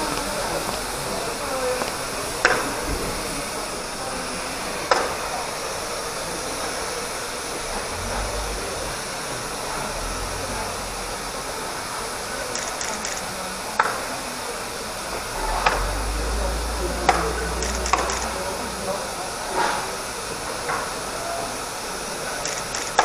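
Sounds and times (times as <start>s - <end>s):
steam hissing: 0.0s - 23.0s
low rumble: 7.6s - 12.4s, 15.1s - 20.6s.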